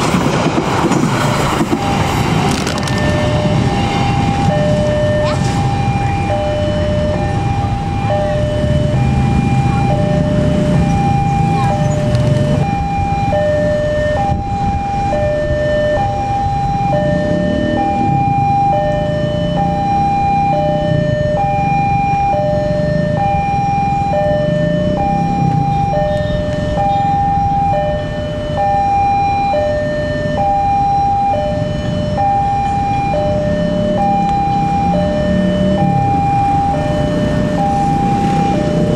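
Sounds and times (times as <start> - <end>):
two-tone crossing alarm: 1.6 - 38.9
low rumble: 14.3 - 20.4.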